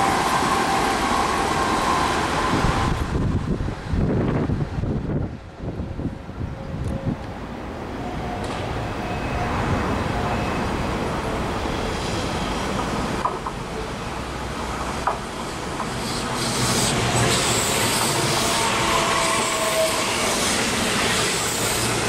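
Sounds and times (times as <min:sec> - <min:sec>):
electric train running rumble: 0:00.0 - 0:22.0.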